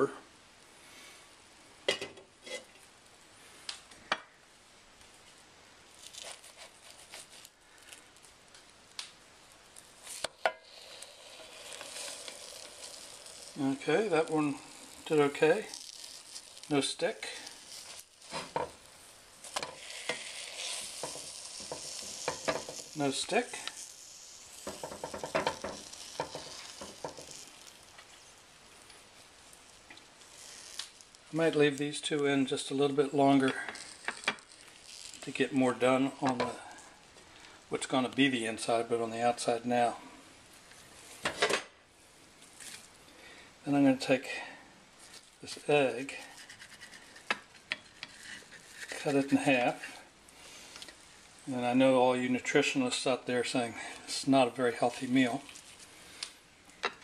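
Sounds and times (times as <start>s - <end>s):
spatula scraping a pan: 2.4s - 2.7s, 9.9s - 28.9s, 29.5s - 36.9s, 45.5s - 50.7s
frying sizzle: 5.9s - 37.9s.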